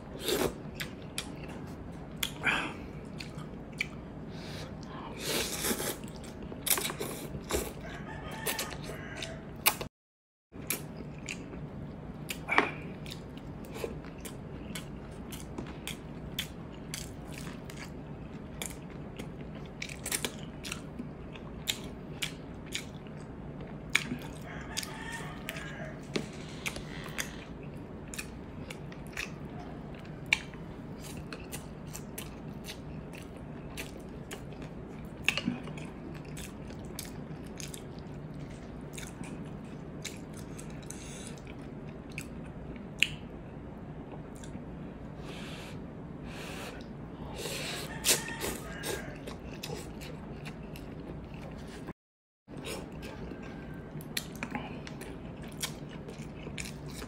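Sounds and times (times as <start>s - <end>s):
steady low hum: 0.0s - 9.9s, 10.6s - 51.9s, 52.5s - 57.0s
chewing and lip-smacking: 0.3s - 4.0s, 10.6s - 43.3s, 47.8s - 51.9s, 52.5s - 57.0s.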